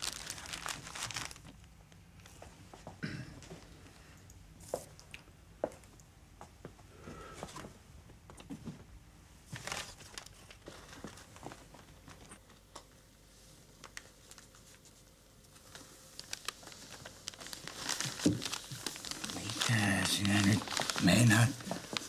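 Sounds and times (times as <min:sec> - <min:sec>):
paper crinkling and rustling: 0:00.0 - 0:02.4, 0:09.5 - 0:12.6, 0:13.4 - 0:22.0.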